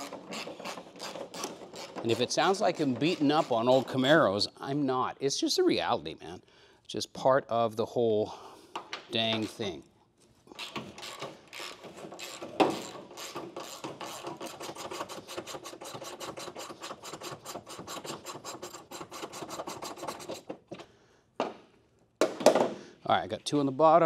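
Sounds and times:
ratchet wrench clicking: 0:10.6 - 0:14.4.

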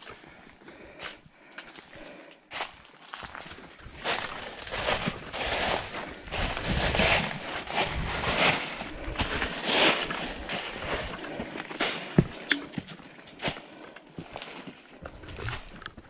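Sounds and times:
footsteps crunching dry leaves: 0:02.5 - 0:12.2.

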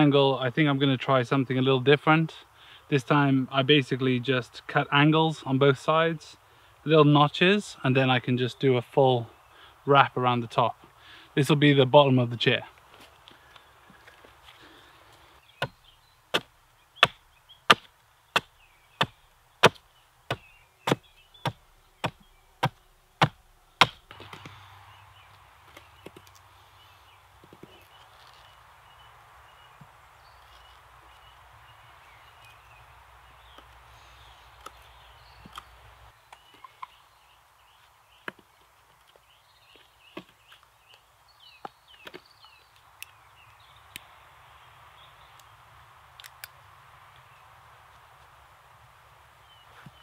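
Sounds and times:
axe chopping wood: 0:15.6 - 0:24.5.

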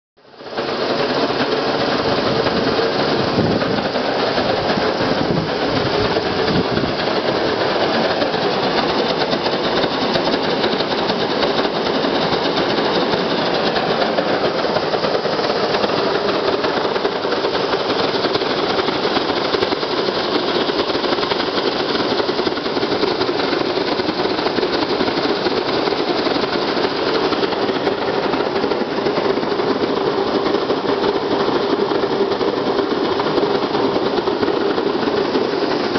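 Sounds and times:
oil burners roaring: 0:00.4 - 0:35.9.

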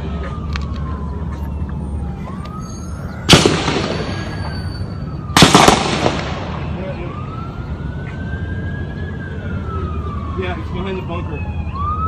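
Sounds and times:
siren wailing: 0:00.0 - 0:12.0
gunshots with echo: 0:03.3 - 0:04.4, 0:05.4 - 0:06.8.

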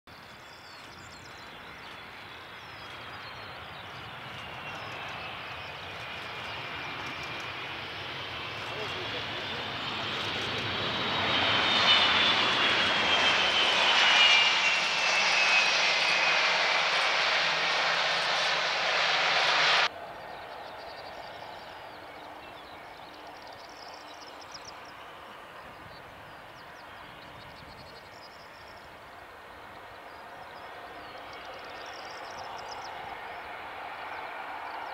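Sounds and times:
birds chirping: 0:00.1 - 0:34.9
high jet engine whine: 0:00.1 - 0:34.9
jet engines rushing: 0:00.9 - 0:27.1.

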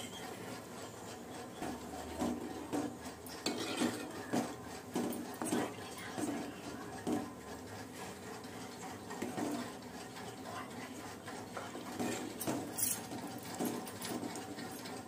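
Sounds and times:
ladle clinking against pot: 0:03.4 - 0:04.1.

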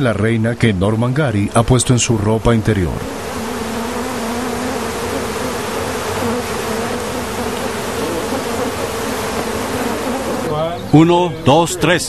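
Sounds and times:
swarm of bees buzzing: 0:01.5 - 0:10.9.

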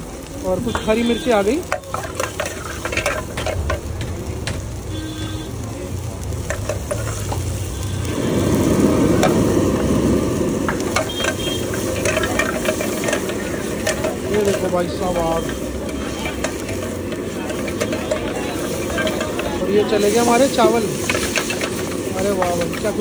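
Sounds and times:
vegetables sizzling in hot oil: 0:00.0 - 0:23.0
ladle clinking against wok: 0:01.6 - 0:03.8, 0:10.7 - 0:23.0.

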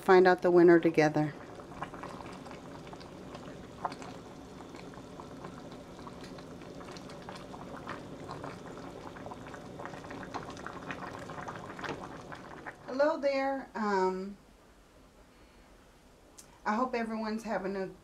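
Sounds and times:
pot boiling with bubbles popping: 0:00.0 - 0:13.5.

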